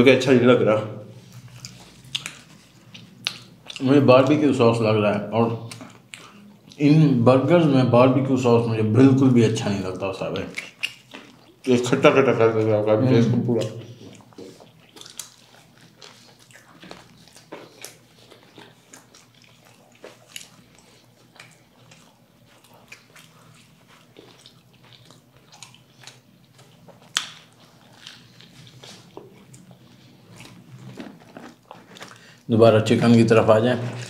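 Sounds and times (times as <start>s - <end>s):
wet chewing sounds: 1.2s - 4.4s, 5.6s - 6.8s, 10.0s - 11.8s, 13.5s - 32.5s.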